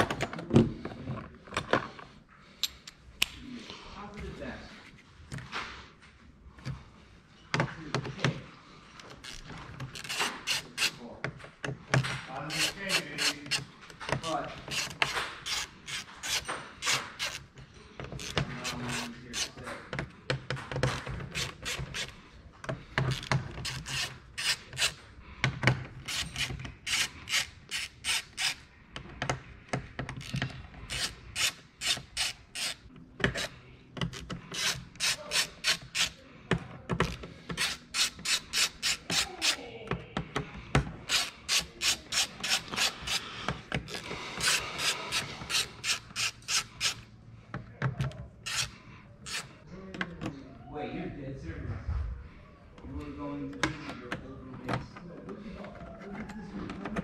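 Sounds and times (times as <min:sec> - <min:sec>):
hand ratchet clicking: 0:09.1 - 0:11.0, 0:12.4 - 0:13.7, 0:14.6 - 0:17.5, 0:20.7 - 0:22.2, 0:23.0 - 0:25.0, 0:26.0 - 0:28.7, 0:30.1 - 0:36.2, 0:37.0 - 0:39.6, 0:41.1 - 0:47.1, 0:48.4 - 0:49.5.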